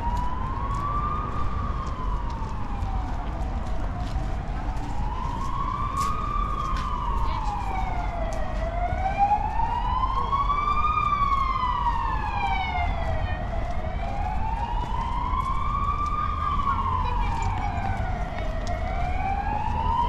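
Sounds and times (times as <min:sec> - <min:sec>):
emergency vehicle siren wailing: 0:00.0 - 0:20.0.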